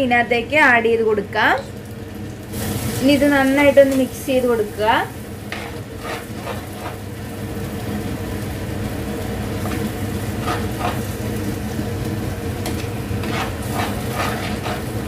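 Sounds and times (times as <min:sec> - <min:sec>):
masala sizzling in a pot: 0:00.0 - 0:15.0
steady low hum: 0:00.0 - 0:15.0
spoon scraping a pot: 0:05.5 - 0:07.0, 0:10.4 - 0:11.1, 0:12.7 - 0:15.0.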